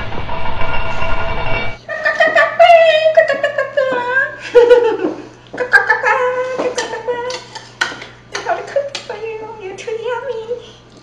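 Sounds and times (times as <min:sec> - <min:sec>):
woman laughing: 0:01.9 - 0:06.2.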